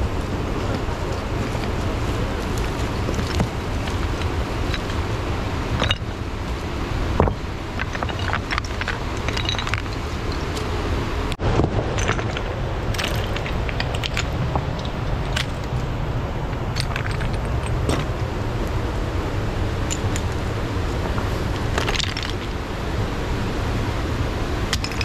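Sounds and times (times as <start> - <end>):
low rushing background: 0.0 - 25.0
stones and gravel clinking: 1.1 - 5.0, 5.7 - 6.1, 7.2 - 10.7, 11.9 - 15.8, 16.5 - 18.2, 21.0 - 22.6, 24.7 - 25.0.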